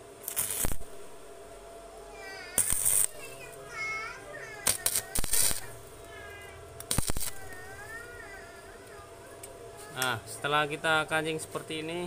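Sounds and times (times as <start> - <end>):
arc welder crackle: 0.0 - 1.6, 2.2 - 10.2.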